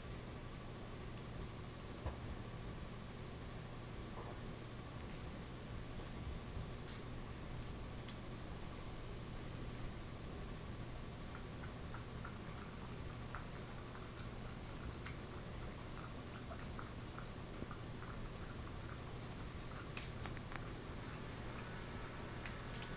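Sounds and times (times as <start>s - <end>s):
steady hiss and low hum: 0.0s - 22.9s
puppy nibbling and shifting: 13.9s - 22.9s.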